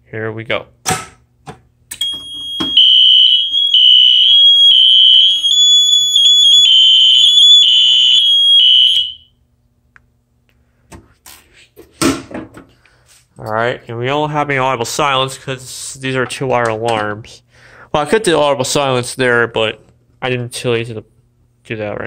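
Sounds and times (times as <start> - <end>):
high-pitched alarm tone: 2.0 - 9.3
alarm horn pulsing: 2.5 - 9.3.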